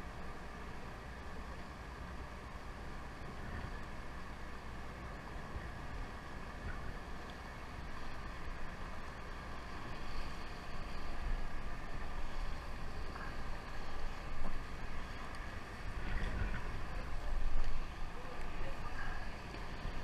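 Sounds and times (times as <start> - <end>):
boat engine rumble: 0.0 - 20.0
wind on microphone: 5.2 - 20.0.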